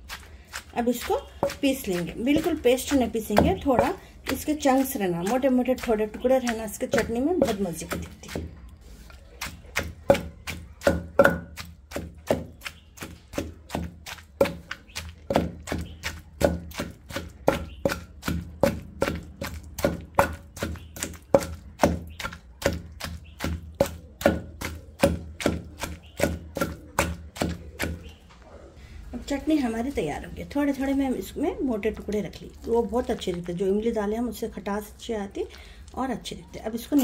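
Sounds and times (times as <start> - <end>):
wooden pestle pounding in stone mortar: 0.0 - 28.2.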